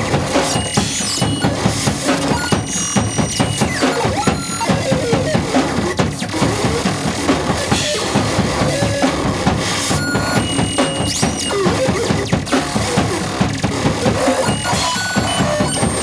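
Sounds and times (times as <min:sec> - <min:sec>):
drum kit played fast: 0:00.0 - 0:16.0
harsh electronic noise: 0:00.0 - 0:16.0.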